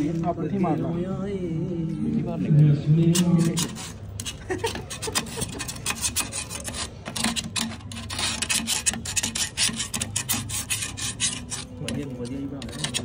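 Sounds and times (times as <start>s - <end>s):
rasping scraping strokes: 3.0s - 13.0s.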